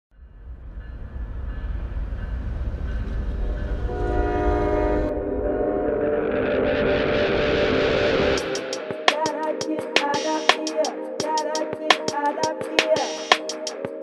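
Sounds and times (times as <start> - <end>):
train rumbling: 0.1 - 6.2
train horn chord: 3.6 - 6.8.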